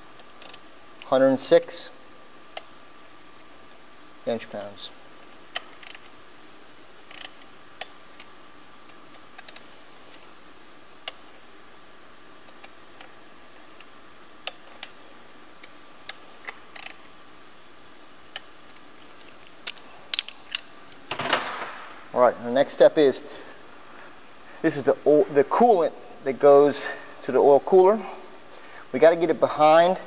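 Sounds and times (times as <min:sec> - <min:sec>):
wrench clicking on metal bolts: 0:05.6 - 0:06.1, 0:07.1 - 0:07.9.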